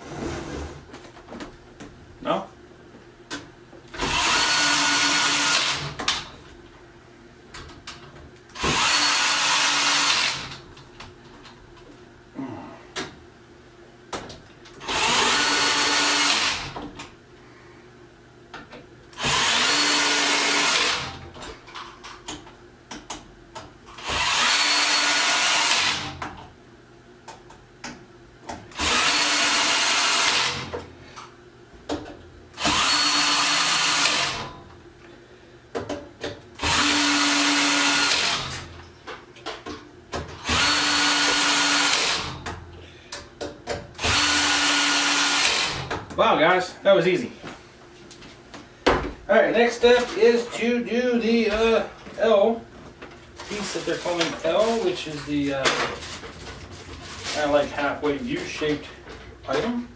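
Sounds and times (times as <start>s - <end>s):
power drill driving screws: 4.0s - 6.3s, 8.6s - 10.6s, 14.8s - 16.8s, 19.2s - 21.2s, 24.0s - 26.2s, 28.7s - 30.7s, 32.6s - 34.5s, 36.6s - 38.7s, 40.4s - 42.4s, 44.0s - 45.9s.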